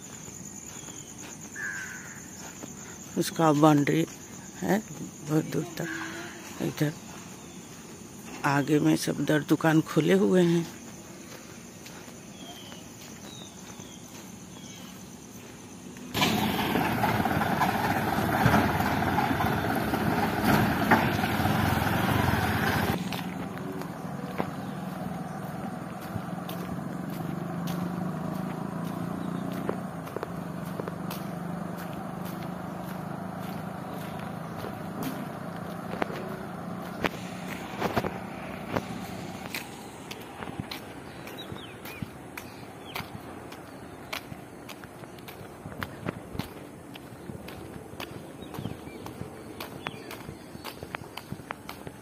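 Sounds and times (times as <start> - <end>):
truck engine running: 13.6 - 50.3.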